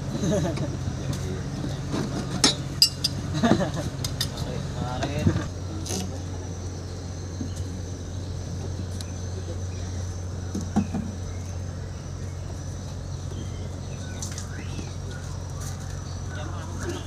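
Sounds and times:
metallic clink: 2.4s - 3.2s.

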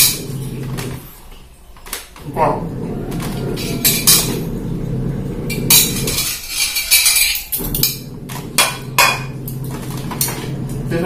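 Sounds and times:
low hum: 2.3s - 6.4s, 7.5s - 11.0s
tableware clinking: 3.1s - 4.5s, 5.5s - 10.6s.

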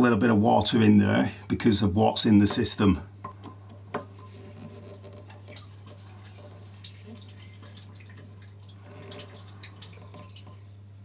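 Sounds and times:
water trickling and dripping: 4.2s - 11.0s.

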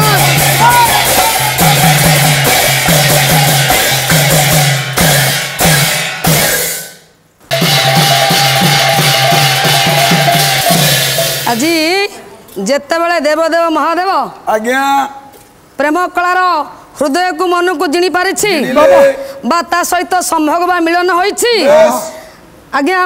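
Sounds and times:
drums and percussion: 0.0s - 12.2s.

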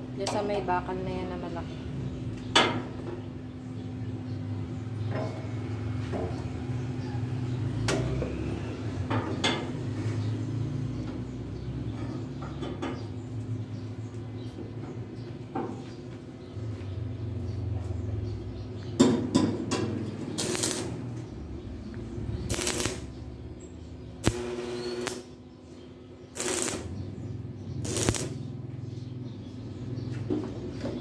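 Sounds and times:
steady low hum: 20.3s - 28.5s.

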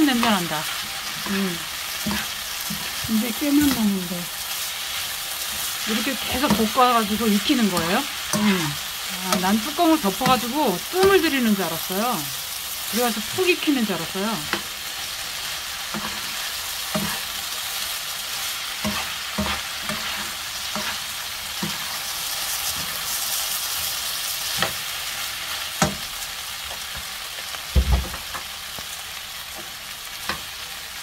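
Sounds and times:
vegetables sizzling in oil: 0.0s - 31.0s
metal spoon scraping a pan: 14.4s - 23.2s.

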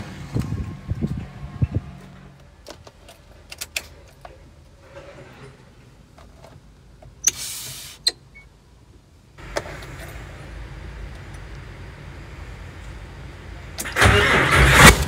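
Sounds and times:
short hiss: 7.3s - 8.1s.

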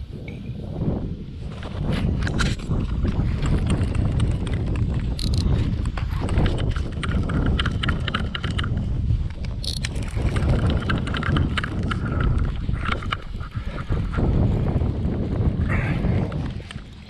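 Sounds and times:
wind rumble: 0.0s - 17.0s
rod handling on microphone: 1.8s - 14.2s
fishing reel clicks: 5.1s - 5.6s, 6.3s - 12.3s.

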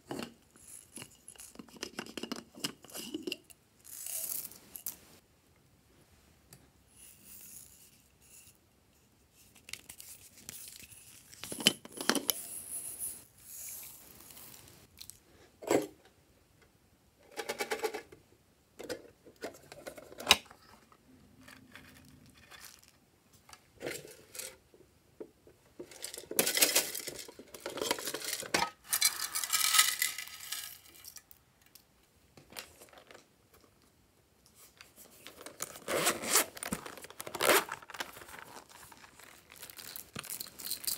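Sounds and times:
plastic crinkling and tearing: 35.2s - 40.9s.

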